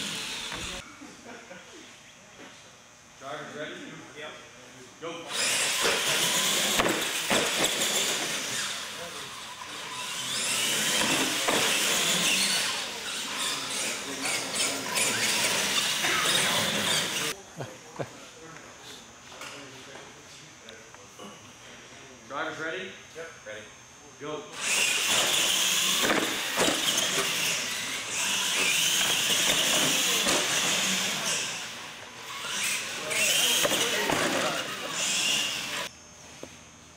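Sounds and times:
electric motors whining: 0.0s - 0.8s, 5.3s - 17.4s, 24.6s - 36.6s.

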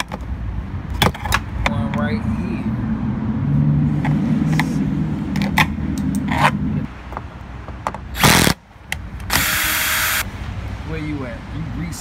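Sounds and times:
power drill running: 9.3s - 10.2s.

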